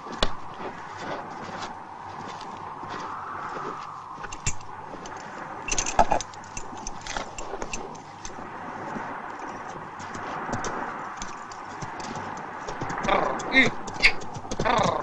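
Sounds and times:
horse tack jingling: 0:04.2 - 0:15.0.

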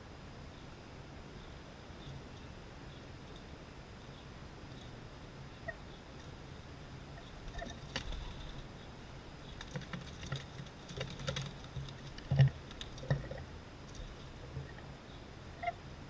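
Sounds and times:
bird claws scrabbling on feeder: 0:09.5 - 0:14.8.

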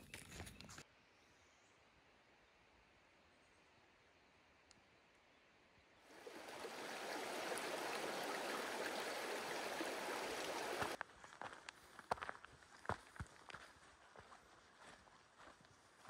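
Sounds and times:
footsteps on trail: 0:00.0 - 0:00.8, 0:06.6 - 0:16.0
creek water rushing: 0:06.1 - 0:11.0.

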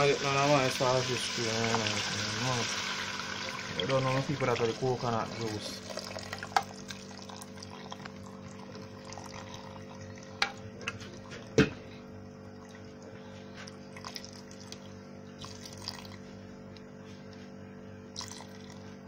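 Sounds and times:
liquid pouring into a pot: 0:00.0 - 0:11.6, 0:13.8 - 0:16.3, 0:18.1 - 0:18.9
steady low hum: 0:00.0 - 0:19.0.

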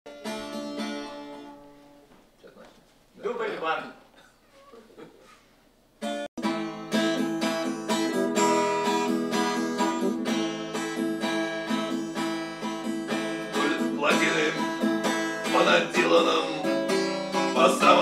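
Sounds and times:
acoustic guitar strumming: 0:00.1 - 0:02.2, 0:06.0 - 0:18.0.

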